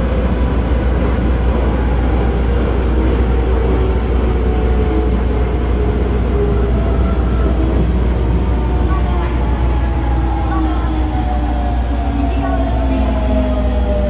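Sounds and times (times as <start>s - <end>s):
subway train wheels rumbling on rails: 0.0s - 14.0s.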